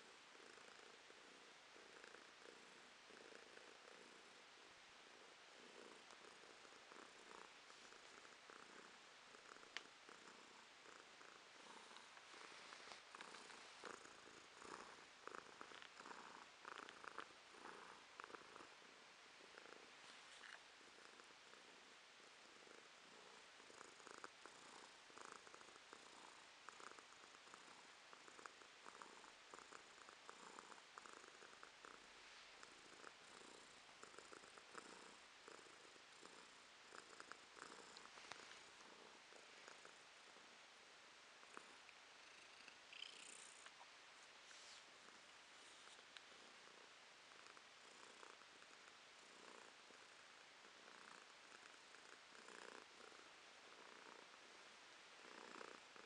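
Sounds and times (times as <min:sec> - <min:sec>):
cat purring: 0:00.0 - 0:56.0
faint small ticks: 0:09.6 - 0:10.0, 0:37.2 - 0:38.6.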